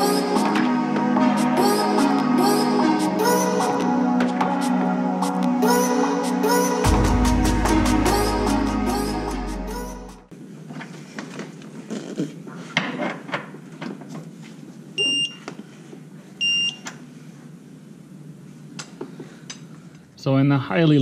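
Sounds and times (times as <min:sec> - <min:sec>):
background music: 0:00.0 - 0:10.3.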